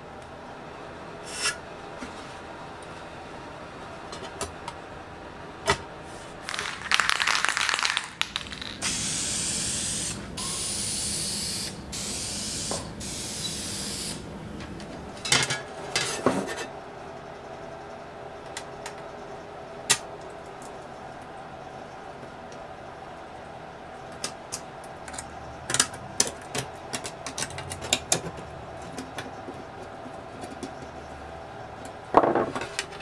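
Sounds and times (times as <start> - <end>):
scratchy rattling: 6.4 - 8.8.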